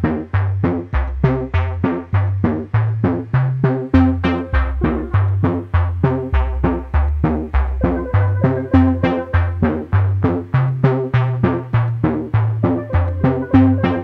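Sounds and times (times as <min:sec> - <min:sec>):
organ drums beating: 0:02.5 - 0:14.0
fairground organ playing: 0:04.0 - 0:05.4, 0:07.8 - 0:10.0, 0:12.7 - 0:14.0.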